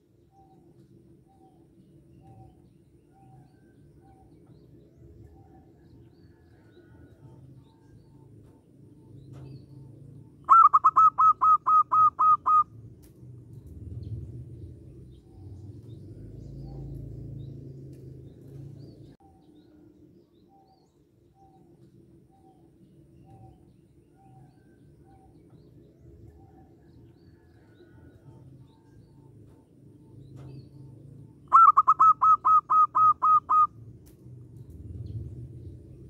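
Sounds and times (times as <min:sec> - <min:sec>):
faint soft bird notes: 0:00.0 - 0:36.0
dove cooing: 0:10.4 - 0:12.6, 0:31.5 - 0:33.7.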